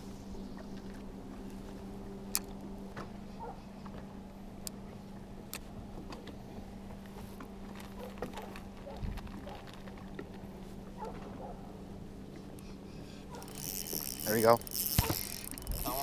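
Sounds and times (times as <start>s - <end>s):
electric trolling motor hum: 11.8s - 16.0s
sharp ticks and clicks: 13.4s - 16.0s.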